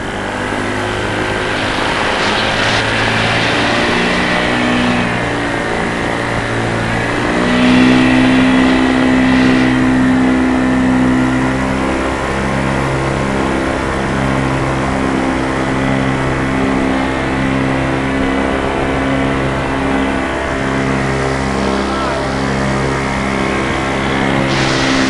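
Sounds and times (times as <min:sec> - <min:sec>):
rush of air: 0:00.0 - 0:12.0, 0:20.4 - 0:25.0
paramotor engine drone: 0:00.0 - 0:25.0.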